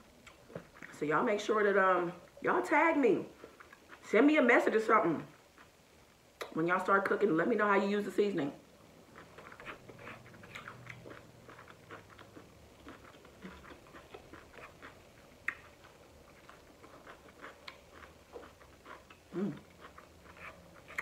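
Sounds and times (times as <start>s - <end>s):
person chewing food: 0.1s - 1.0s, 3.3s - 4.1s, 5.3s - 5.8s, 9.0s - 21.0s.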